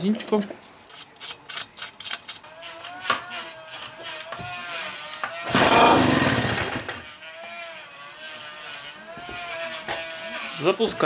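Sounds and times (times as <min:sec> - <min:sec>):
outboard motor spinning over: 0:05.4 - 0:07.0
recoil starter pull: 0:05.5 - 0:07.0.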